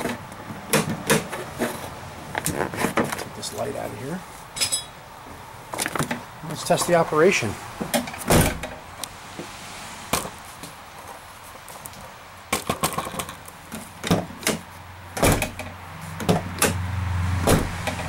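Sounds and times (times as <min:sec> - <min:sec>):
car door knocks: 0:17.4 - 0:18.0.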